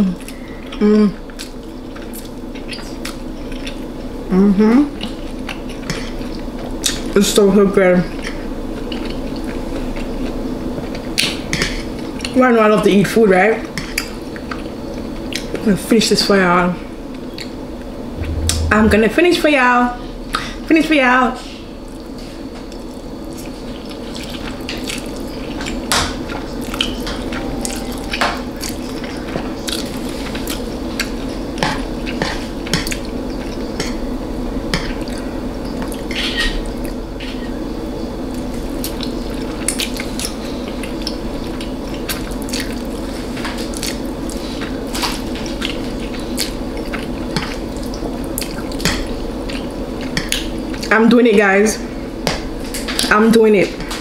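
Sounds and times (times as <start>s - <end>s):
wet chewing and mouth clicks: 23.8s - 31.2s, 38.3s - 43.0s, 43.6s - 50.9s.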